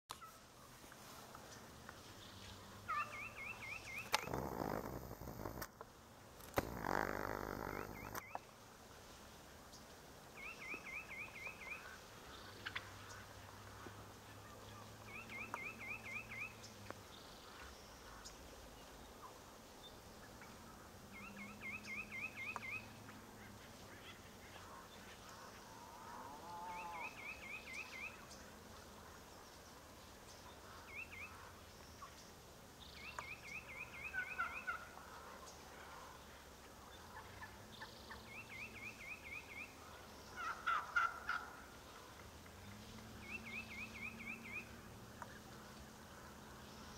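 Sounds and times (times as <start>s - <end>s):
turkeys gobbling: 2.9s - 4.8s, 12.6s - 13.2s, 33.5s - 36.2s, 40.4s - 42.2s.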